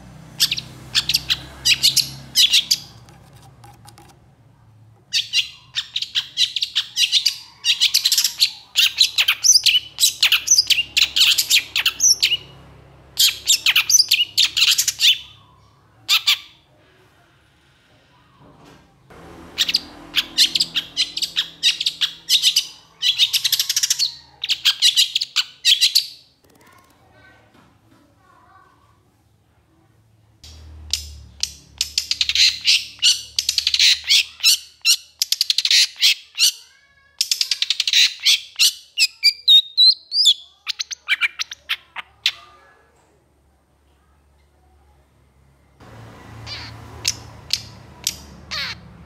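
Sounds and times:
shrike harsh chattering song: 0:00.4 - 0:03.2, 0:19.4 - 0:25.2.

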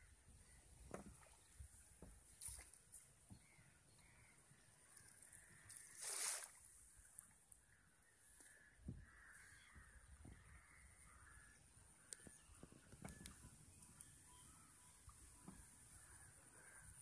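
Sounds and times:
crows cawing in the distance: 0:03.4 - 0:06.2, 0:07.6 - 0:12.4, 0:15.9 - 0:17.0.

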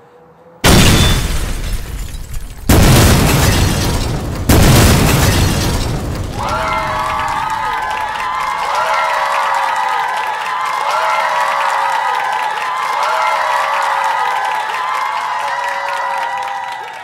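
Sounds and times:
explosion booms with rumble: 0:00.6 - 0:07.8.

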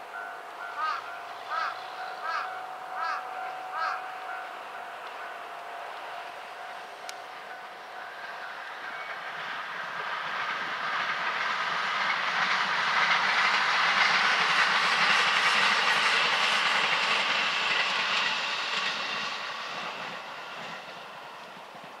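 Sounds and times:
electric train passing: 0:00.0 - 0:22.0.

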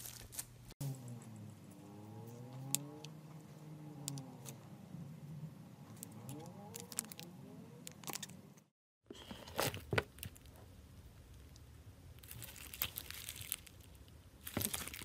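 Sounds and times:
slime beads crackling: 0:06.7 - 0:07.2, 0:12.2 - 0:15.0.

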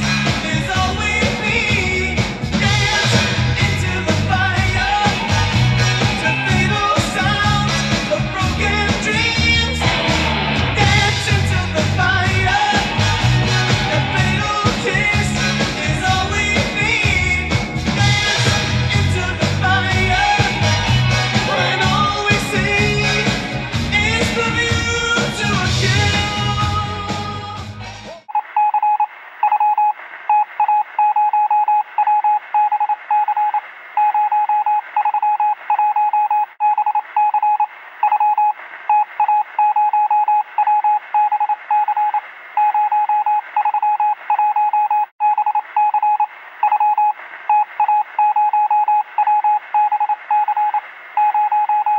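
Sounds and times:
music: 0:00.0 - 0:28.2
morse code beeping: 0:28.3 - 0:51.9.

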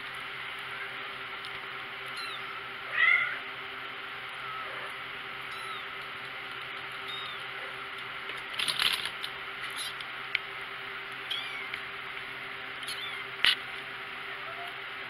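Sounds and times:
steady low hum: 0:00.0 - 0:15.0
kittens mewing: 0:02.1 - 0:03.5, 0:04.3 - 0:06.0, 0:07.0 - 0:07.9, 0:11.2 - 0:11.8, 0:12.8 - 0:13.6.

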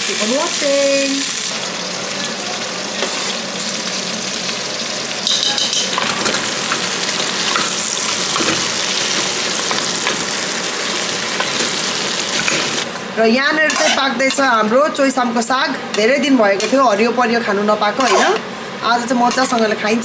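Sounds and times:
meat frying in hot oil: 0:00.0 - 0:12.9.

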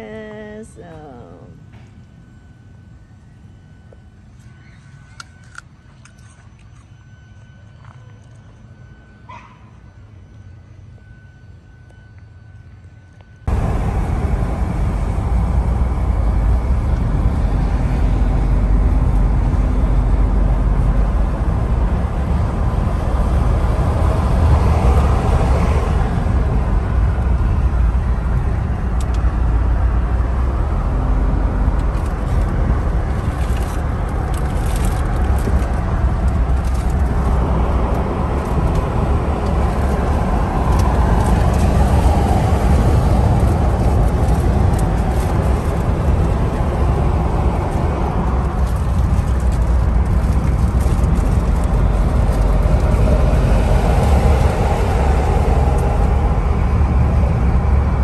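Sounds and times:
vehicle driving at highway speed: 0:13.4 - 0:58.0.

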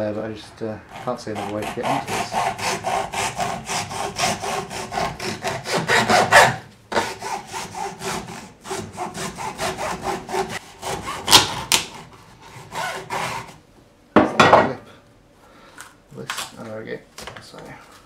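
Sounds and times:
hacksaw sawing through filter: 0:00.9 - 0:13.6.

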